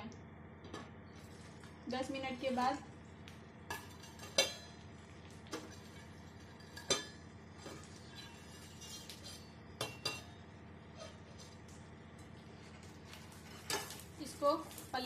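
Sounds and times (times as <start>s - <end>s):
metal utensils clinking on pan: 3.7s - 4.8s, 5.5s - 10.3s, 13.4s - 14.8s.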